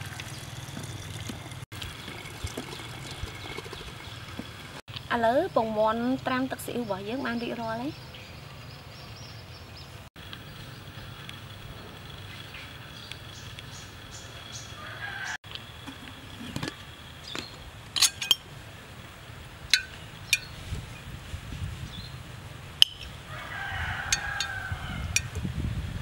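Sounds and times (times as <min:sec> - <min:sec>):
rooster crowing: 0:14.8 - 0:15.4, 0:23.2 - 0:25.2
metal spoon clinking on glass jar: 0:18.0 - 0:18.4.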